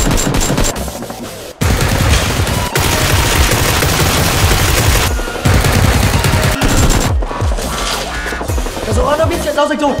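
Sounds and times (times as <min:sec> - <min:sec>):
rapid automatic gunfire: 0:00.0 - 0:07.2.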